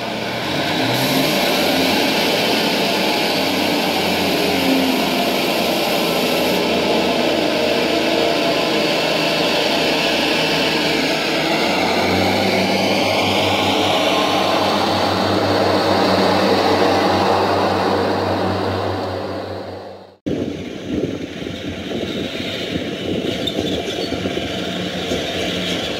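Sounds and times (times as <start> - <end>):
model train engine drone: 0.0 - 25.9.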